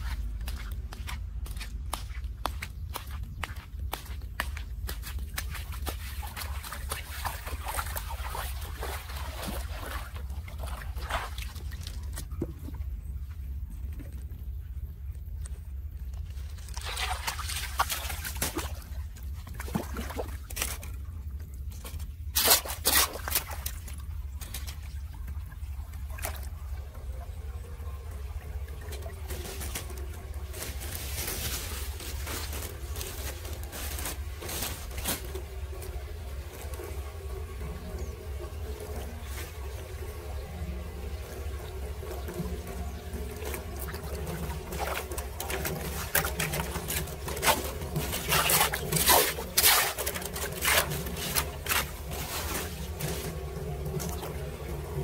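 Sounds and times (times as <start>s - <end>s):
sharp water splashes: 4.0s - 11.9s, 16.6s - 21.0s, 43.7s - 54.3s
water pouring into drain: 5.8s - 12.4s, 16.5s - 21.4s, 22.2s - 55.0s
steady low drone: 23.7s - 55.0s.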